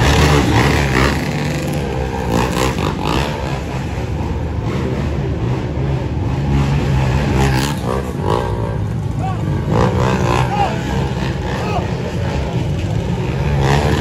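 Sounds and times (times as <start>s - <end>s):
vehicle engines revving: 0.0s - 14.0s
crowd voices: 6.8s - 14.0s.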